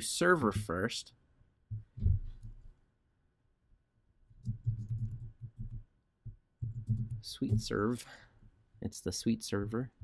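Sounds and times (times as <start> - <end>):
computer keyboard typing: 4.4 - 5.9, 6.6 - 7.8.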